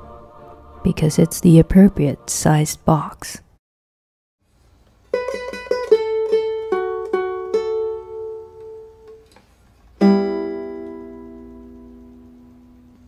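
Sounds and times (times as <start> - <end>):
strummed chord: 5.1 - 9.2, 10.0 - 13.0
plucked string notes: 5.1 - 9.4, 10.0 - 12.9.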